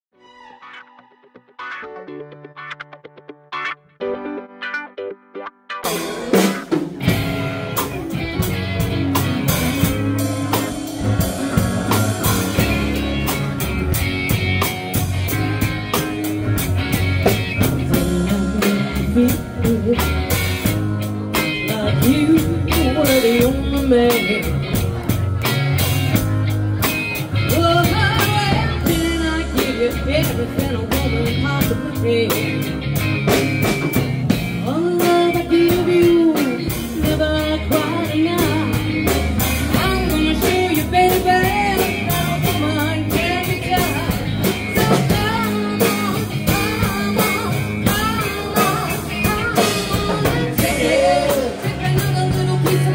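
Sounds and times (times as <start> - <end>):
electric guitar: 0.2 - 52.9
bass guitar: 1.4 - 52.9
drum kit beat: 5.8 - 52.9
woman singing: 17.8 - 20.5, 21.4 - 24.8, 27.5 - 32.7, 34.6 - 39.1, 39.7 - 52.9.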